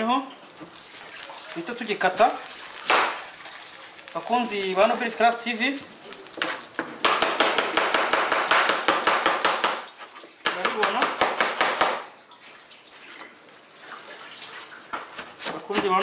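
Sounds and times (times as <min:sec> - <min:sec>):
knife slicing onion on cutting board: 0:15.0 - 0:16.0.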